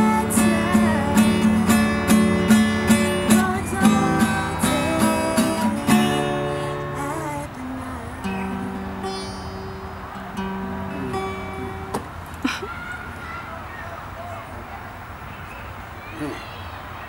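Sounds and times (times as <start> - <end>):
acoustic guitar strumming: 0.0 - 12.8.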